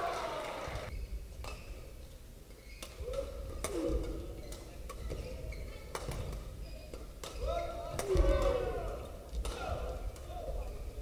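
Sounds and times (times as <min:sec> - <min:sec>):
shoes squeaking on court: 0:00.9 - 0:03.2, 0:04.2 - 0:07.5.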